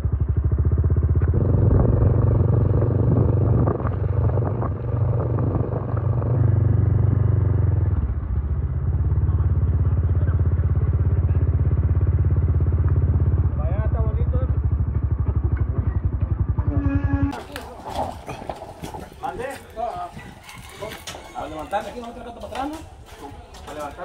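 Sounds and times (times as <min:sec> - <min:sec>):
vehicle engine throbbing: 0:00.0 - 0:19.5.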